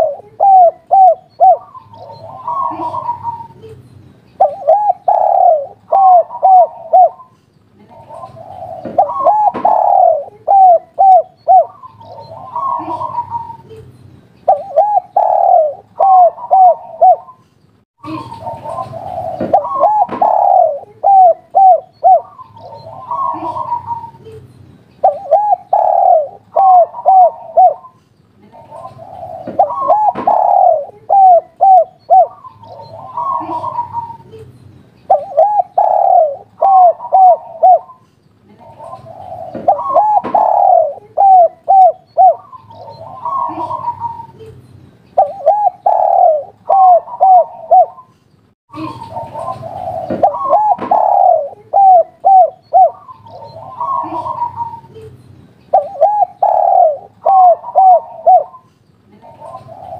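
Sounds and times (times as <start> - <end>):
dove cooing: 0.0 - 3.8, 4.4 - 17.4, 18.0 - 24.4, 25.0 - 34.4, 35.1 - 44.6, 45.2 - 48.1, 48.7 - 55.1, 55.7 - 59.9.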